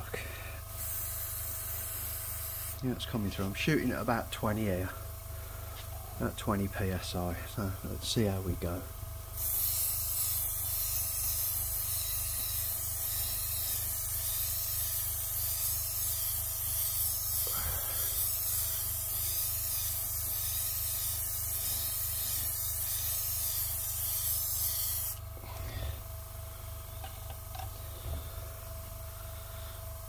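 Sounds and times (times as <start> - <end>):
airbrush spraying hiss: 9.4 - 25.2.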